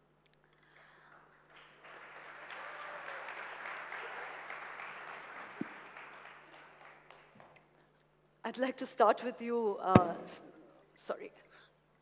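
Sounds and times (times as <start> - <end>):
audience applauding: 1.2 - 7.5.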